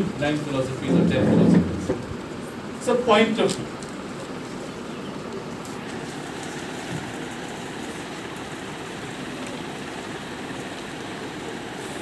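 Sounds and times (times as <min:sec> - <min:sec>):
steady rushing room noise: 0:00.0 - 0:03.7.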